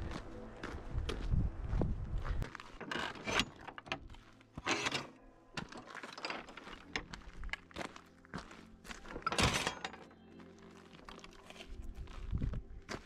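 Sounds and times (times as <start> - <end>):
footsteps on gravel: 0.0 - 2.8, 5.7 - 9.3, 10.0 - 13.0
wooden gate rattling: 2.8 - 7.2, 9.1 - 10.1.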